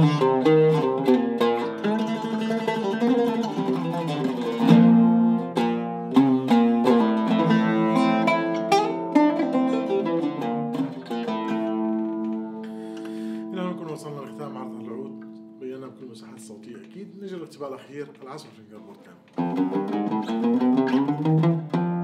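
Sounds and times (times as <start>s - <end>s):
oud played with plectrum: 0.0s - 22.0s.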